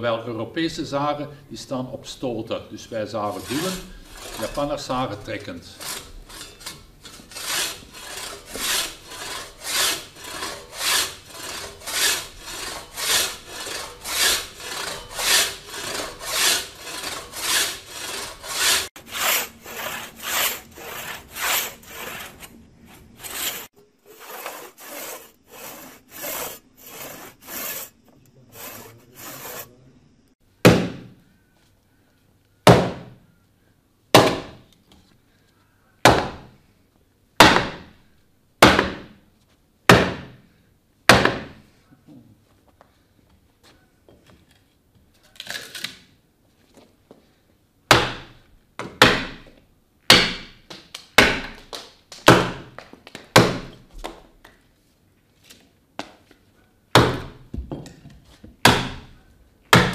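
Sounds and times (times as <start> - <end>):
pull saw rasping through wood: 3.3 - 5.0, 5.8 - 29.8
axe striking wood: 30.7 - 31.1, 32.7 - 33.1, 34.2 - 34.6, 37.4 - 37.9, 38.6 - 39.2, 39.9 - 40.4, 41.1 - 41.6, 47.9 - 49.5, 50.1 - 50.6, 51.2 - 51.6, 52.3 - 52.7, 53.4 - 53.8, 57.0 - 57.4, 58.6 - 59.1.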